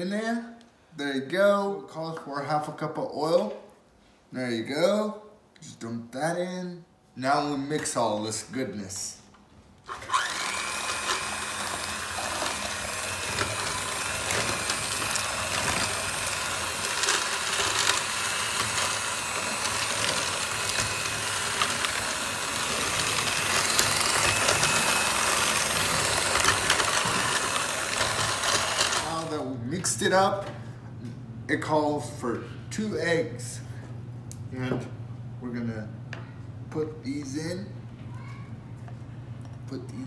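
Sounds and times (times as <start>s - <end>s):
electric hand mixer running: 9.9s - 29.4s.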